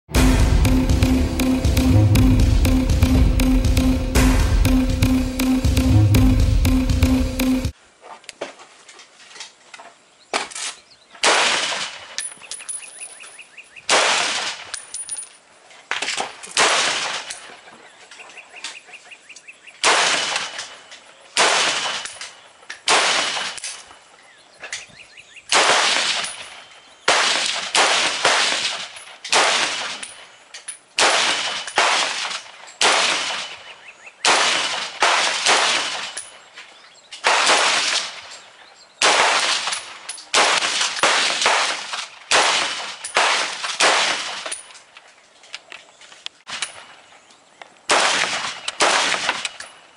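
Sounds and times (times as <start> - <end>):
rifle single shots echoing: 11.2 - 12.1, 13.9 - 14.7, 19.8 - 20.8, 21.4 - 22.2, 22.8 - 23.7, 25.5 - 26.5, 27.1 - 30.0, 31.0 - 36.2, 37.2 - 38.3, 39.0 - 44.6, 47.9 - 49.6.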